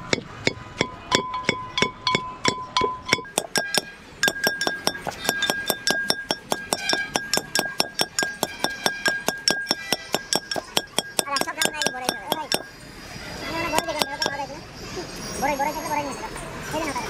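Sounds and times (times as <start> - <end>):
utensil clinking a ringing vessel: 0.5 - 12.8, 13.8 - 14.6.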